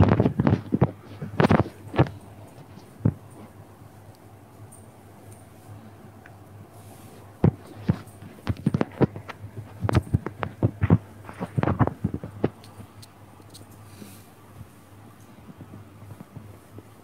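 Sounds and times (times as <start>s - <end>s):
microphone handling thumps: 0.0s - 2.2s, 7.4s - 12.6s
faint low hum: 0.0s - 17.0s.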